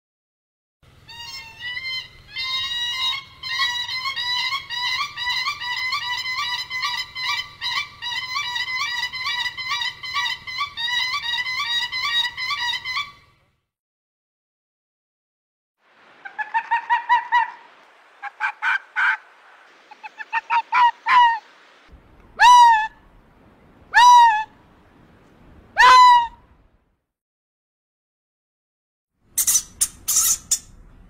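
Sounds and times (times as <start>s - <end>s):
animal calls sweeping in pitch: 16.2s - 21.6s, 22.4s - 23.0s.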